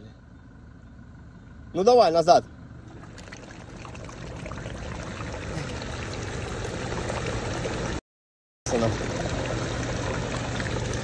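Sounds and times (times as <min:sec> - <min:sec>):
pickup engine running: 0:00.0 - 0:08.0
wheel churning muddy water: 0:02.9 - 0:08.0, 0:08.7 - 0:11.0.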